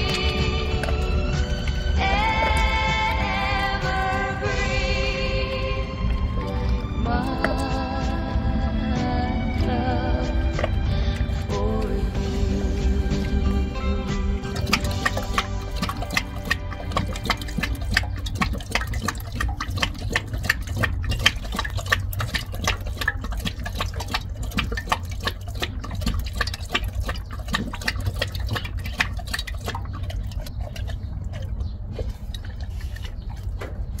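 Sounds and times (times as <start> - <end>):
dog lapping water from bowl: 0.0 - 8.8, 10.2 - 34.0.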